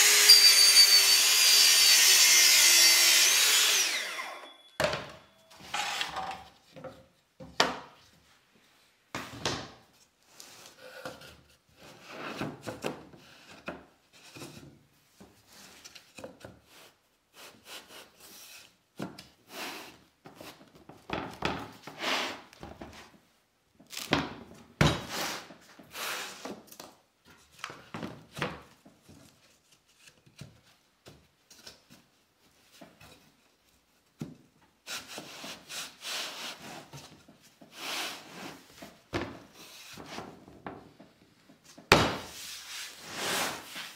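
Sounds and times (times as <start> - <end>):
wooden boards knocking and thudding: 41.9 - 42.3.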